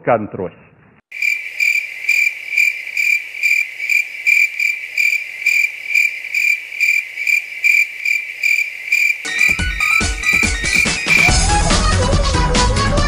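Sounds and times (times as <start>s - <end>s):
cricket chirping: 1.1s - 11.3s.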